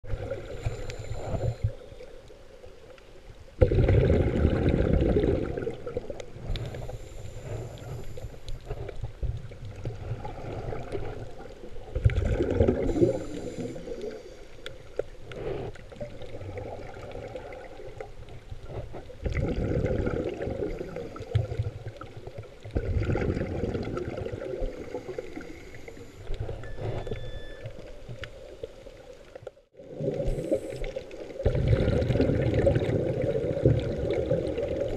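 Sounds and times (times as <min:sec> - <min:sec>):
scuba regulator breathing: 0:00.3 - 0:02.0, 0:06.4 - 0:09.0, 0:12.7 - 0:15.9, 0:24.6 - 0:27.4
bursts of bubbles: 0:03.6 - 0:06.2, 0:12.0 - 0:13.2, 0:19.2 - 0:20.8, 0:22.7 - 0:24.6, 0:29.8 - 0:34.9.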